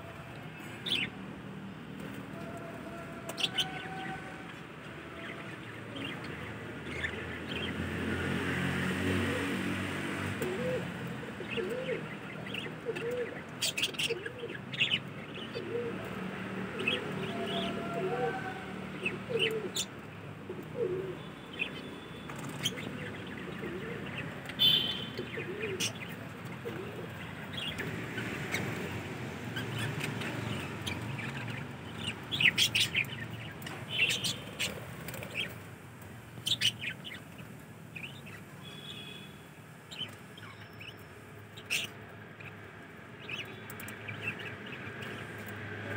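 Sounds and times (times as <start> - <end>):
budgerigars and finches chirping: 0.7 - 1.2, 5.3 - 7.8, 10.3 - 15.9, 19.0 - 20.0, 20.8 - 35.6, 36.3 - 45.9
pigeon cooing: 10.4 - 21.3, 22.4 - 28.8.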